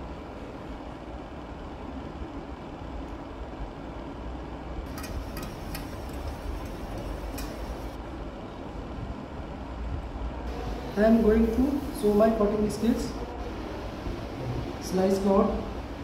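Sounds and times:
light clicks and knocks: 4.9s - 8.0s.

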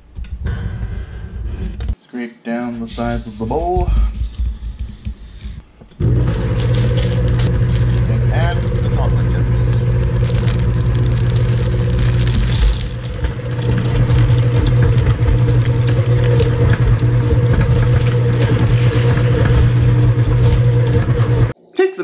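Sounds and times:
stand mixer beating dough: 6.0s - 21.5s.

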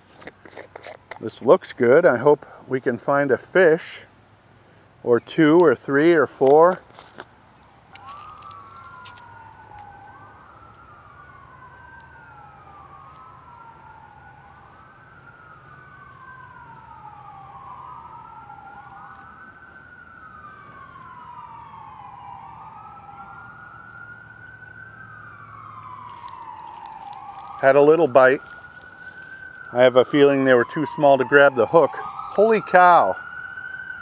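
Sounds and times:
emergency sirens wailing: 7.6s - 34.0s.

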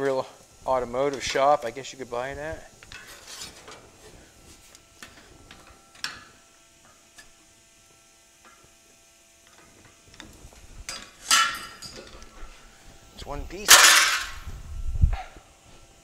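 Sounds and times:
hand shear snipping metal: 10.9s - 12.3s.

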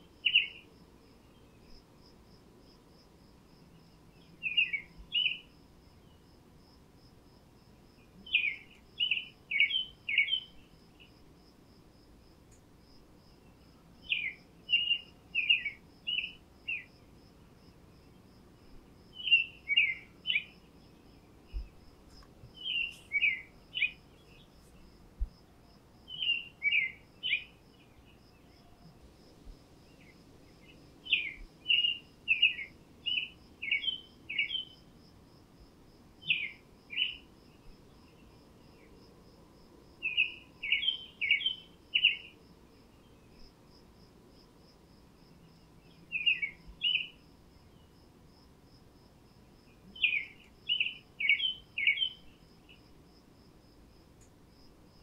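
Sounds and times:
songbird singing: 0.0s - 35.1s, 36.2s - 44.4s, 45.1s - 48.5s, 49.2s - 53.2s.

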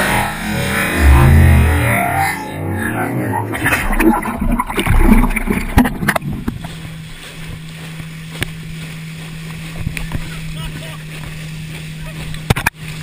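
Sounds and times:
low hum: 0.0s - 10.7s
water rushing and splashing: 0.0s - 13.0s
sharp crackles and knocks: 3.6s - 10.4s.

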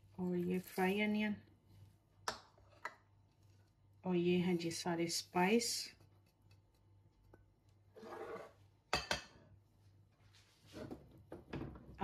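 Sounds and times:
kitchenware clinking: 8.9s - 9.5s.

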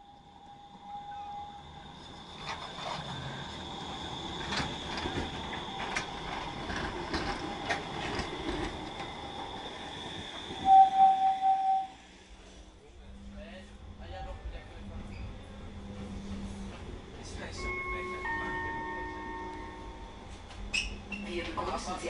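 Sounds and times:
tram high whine: 0.0s - 22.0s
tram wheels clicking over rail joints: 2.0s - 10.7s
pulsing signal tone: 10.6s - 12.0s.

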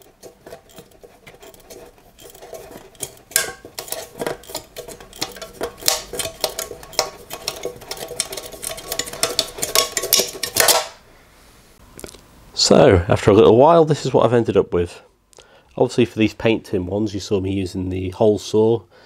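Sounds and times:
tin can metal crinkling and clicking: 0.0s - 11.0s.

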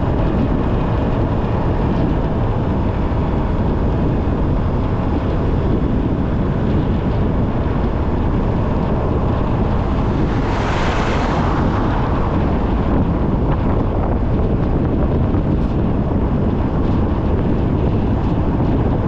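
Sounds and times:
car road and wind noise: 0.0s - 19.0s
hissing rush: 7.7s - 14.3s.

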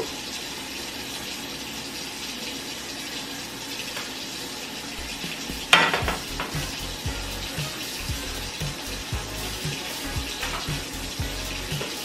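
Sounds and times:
butter sizzling in a frying pan: 5.0s - 12.0s
pan clattering on stove: 5.6s - 6.7s.

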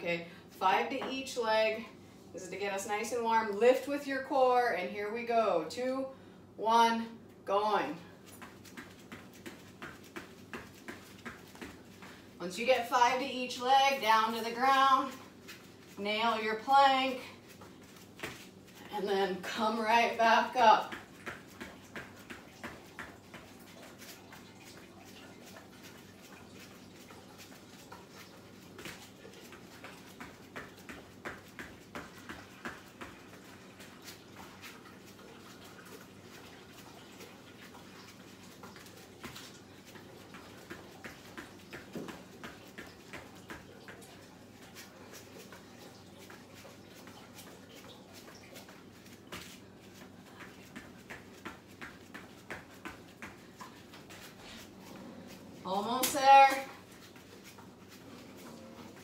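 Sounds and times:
bare feet thumping on mat: 8.4s - 12.2s, 40.3s - 44.0s, 48.2s - 54.8s.

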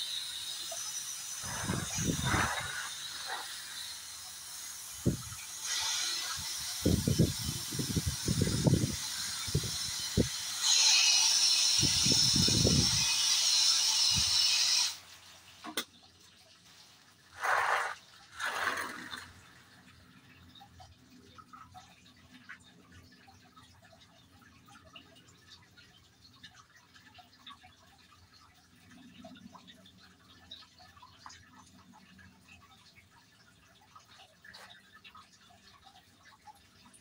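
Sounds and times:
hose nozzle spraying water: 0.0s - 15.9s, 17.0s - 19.8s.

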